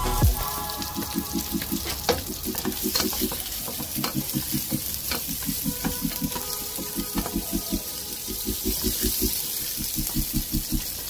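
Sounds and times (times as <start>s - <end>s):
oil popping: 0.2s - 11.0s
onion frying in hot oil: 0.3s - 11.0s.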